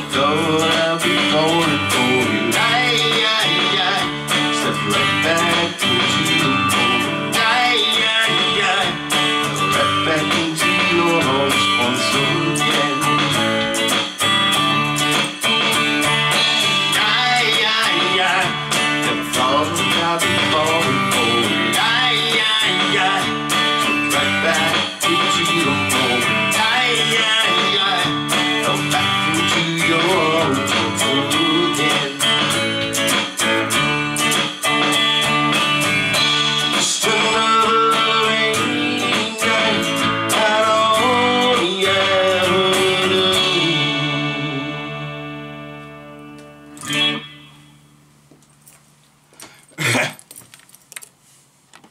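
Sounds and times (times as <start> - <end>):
man singing country song: 0.0 - 13.8, 16.6 - 33.8, 36.1 - 45.3, 46.8 - 47.5
electric guitar strumming: 0.0 - 48.4.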